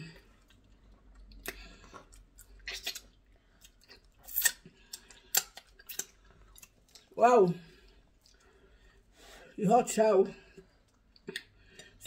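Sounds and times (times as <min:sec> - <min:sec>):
wet chewing: 0:00.1 - 0:07.2, 0:07.8 - 0:09.0
lip smacks: 0:00.4 - 0:07.1, 0:10.9 - 0:12.0.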